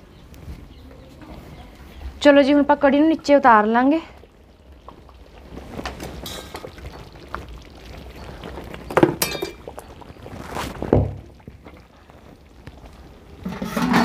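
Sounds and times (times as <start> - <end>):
pan and ladle clinking: 8.9 - 10.0, 13.4 - 14.0
pan set down with thud: 13.5 - 14.0.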